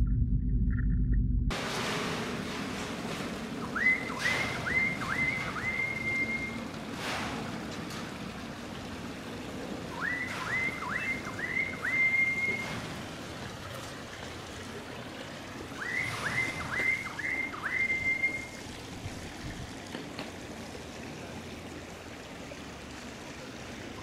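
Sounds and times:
person whistling: 3.8s - 6.6s, 10.0s - 12.6s, 15.8s - 18.6s.

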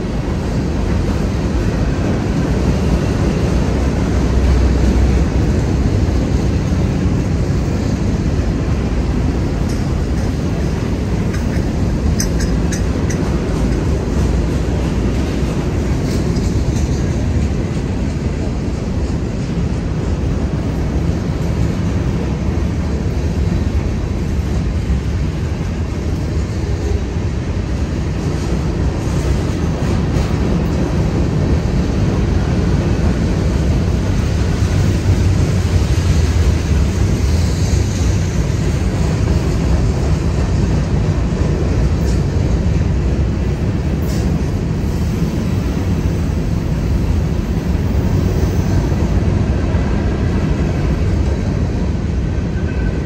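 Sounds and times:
freight train rumbling past: 0.0s - 53.0s.

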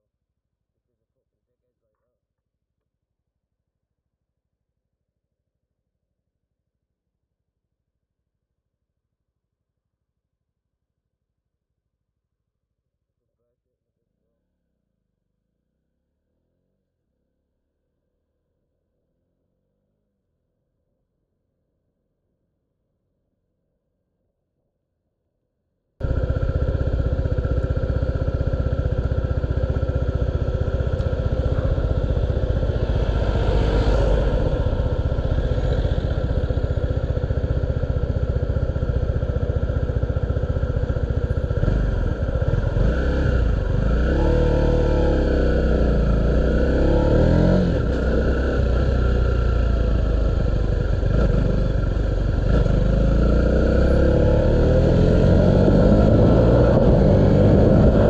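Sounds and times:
motorcycle engine revving: 26.0s - 58.0s.

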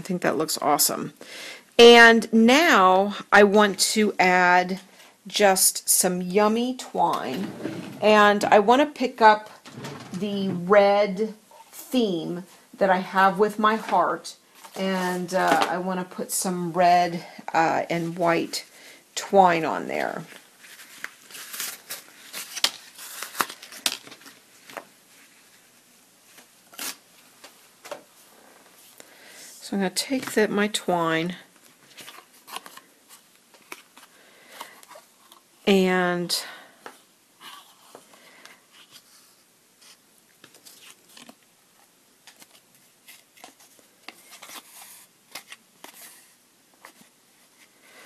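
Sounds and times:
paper card and twine rustling: 20.3s - 27.6s, 31.6s - 35.5s, 42.2s - 47.7s.

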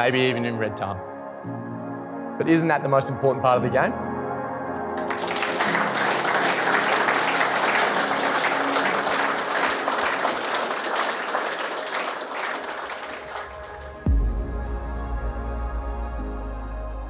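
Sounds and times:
soft music: 0.0s - 17.0s
crowd applauding: 4.9s - 14.1s.

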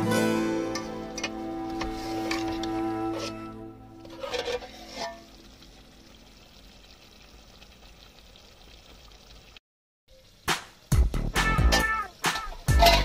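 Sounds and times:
background music: 0.0s - 4.2s, 10.4s - 13.0s
curry simmering sizzle: 0.1s - 13.0s
ladle scraping a metal pot: 0.6s - 5.6s, 11.7s - 13.0s.

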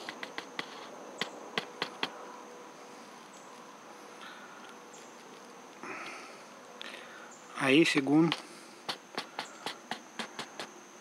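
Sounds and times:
sharp clicks: 0.0s - 2.2s
insects humming: 0.0s - 11.0s.

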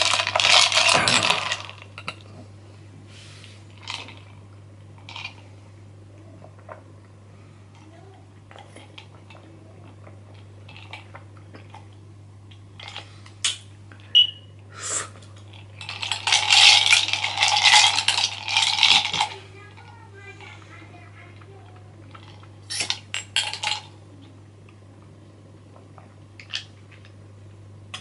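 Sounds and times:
straw rattling ice in a glass: 0.0s - 1.9s, 15.5s - 20.0s, 22.2s - 23.9s.

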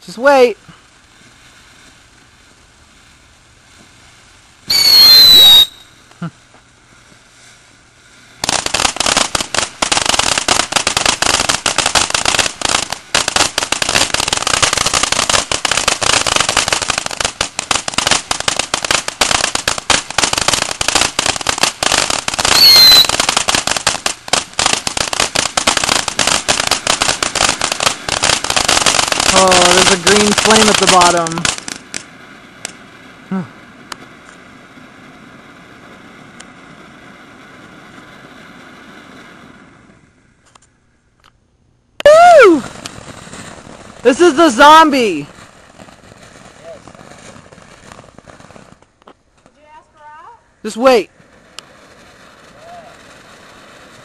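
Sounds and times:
fireworks spraying sparks: 0.0s - 41.4s, 42.0s - 54.0s
falling whistle: 4.7s - 6.0s, 22.5s - 23.1s
dense continuous crackling: 5.7s - 34.4s, 42.0s - 54.0s.

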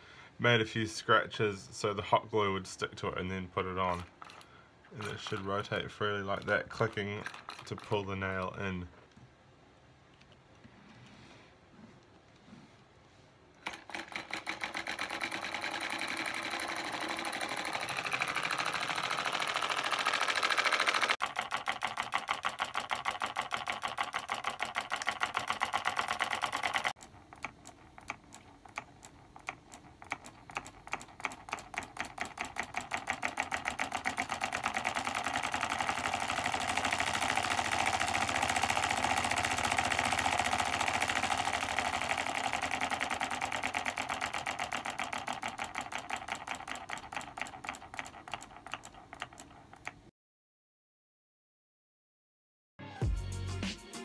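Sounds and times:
solenoid engine clattering: 3.6s - 8.6s, 13.6s - 50.1s.

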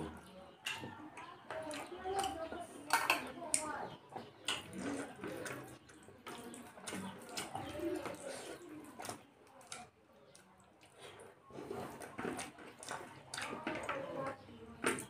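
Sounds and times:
fingers squishing food on paper plate: 0.6s - 15.0s
wet chewing and mouth smacking: 4.4s - 14.0s.

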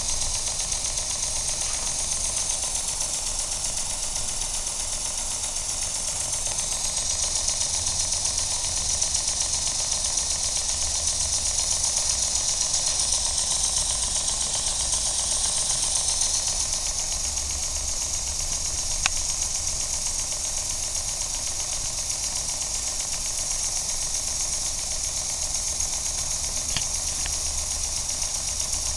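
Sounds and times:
steam engine clatter: 0.0s - 28.9s
steam hiss: 0.1s - 18.8s
sharp click: 26.2s - 27.6s.

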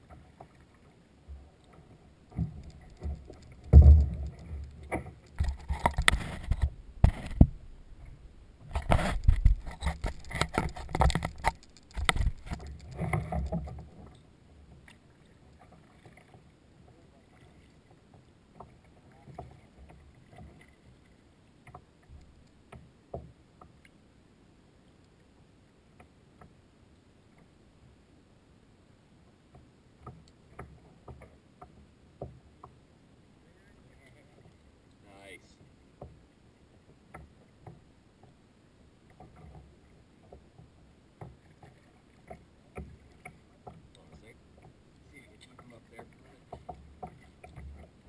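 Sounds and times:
paddle splashes: 0.0s - 23.8s, 29.4s - 48.0s
paddle knocking plastic hull: 2.3s - 14.1s, 39.1s - 44.8s, 45.4s - 48.0s
heavy thump: 3.7s - 4.6s.

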